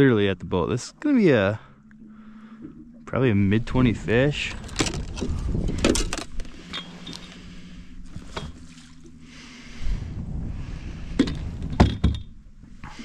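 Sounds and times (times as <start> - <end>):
low steady hum: 0.0 - 13.0
wind on microphone: 3.5 - 8.7, 9.4 - 13.0.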